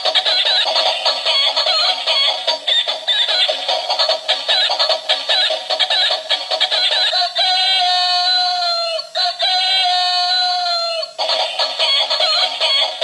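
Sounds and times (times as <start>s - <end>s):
jingly toy tune: 0.0s - 13.0s
electronic rooster crows: 7.2s - 13.0s.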